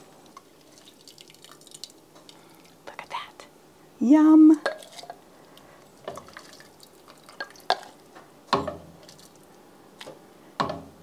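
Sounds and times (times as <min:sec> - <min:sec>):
ladle pouring beans and broth: 0:00.0 - 0:02.8, 0:04.6 - 0:10.2.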